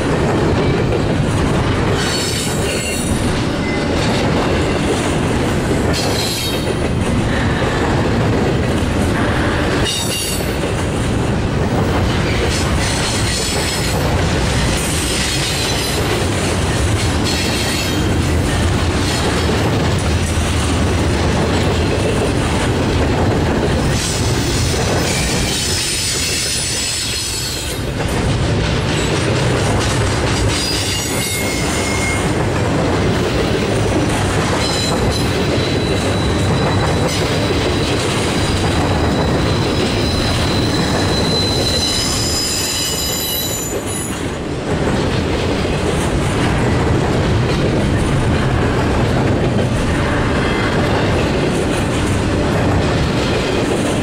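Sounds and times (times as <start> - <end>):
train wheels rumbling on rail: 0.0 - 54.0
high-pitched wheel squeals: 30.6 - 32.2, 39.0 - 44.2.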